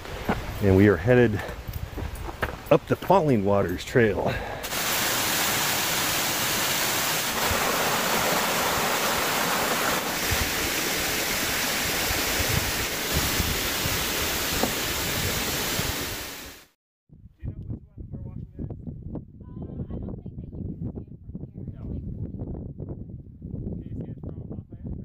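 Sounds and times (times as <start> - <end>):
waterfall rushing: 4.6 - 16.7.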